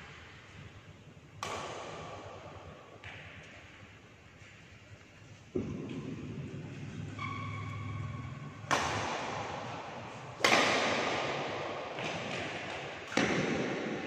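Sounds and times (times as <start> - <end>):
racket hitting shuttlecock: 1.4 - 3.8, 8.3 - 14.0.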